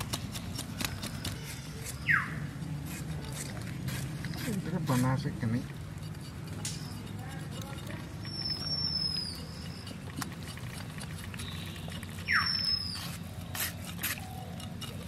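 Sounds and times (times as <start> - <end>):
knife scraping and cutting tripe: 0.0 - 15.0
high thin squeaks: 6.0 - 10.8, 11.4 - 15.0.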